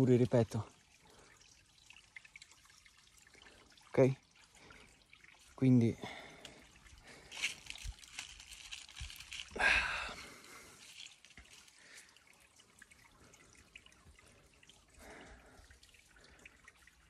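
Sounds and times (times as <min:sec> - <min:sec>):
faint trickling water: 0:00.0 - 0:17.0.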